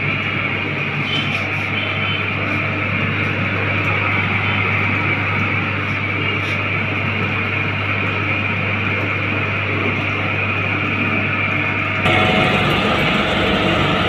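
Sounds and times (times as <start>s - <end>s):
electric motor hum: 12.0s - 14.0s.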